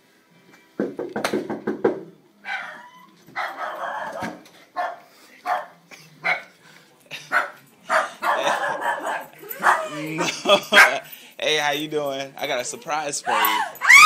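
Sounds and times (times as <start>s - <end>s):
small dog barking: 3.4s - 6.5s, 7.3s - 9.9s.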